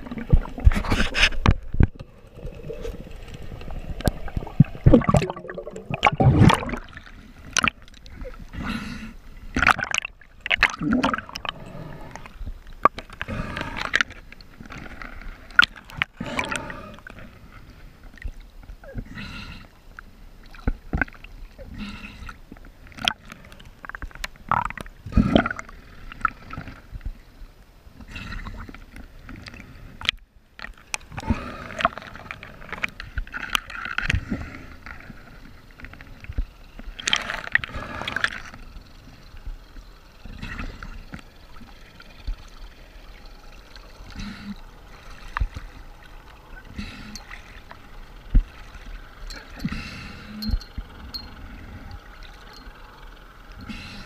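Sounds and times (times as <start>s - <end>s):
water sloshing and splashing: 0.0s - 8.6s, 9.3s - 19.1s, 28.6s - 54.0s
water gurgling: 0.0s - 19.1s, 30.8s - 54.0s.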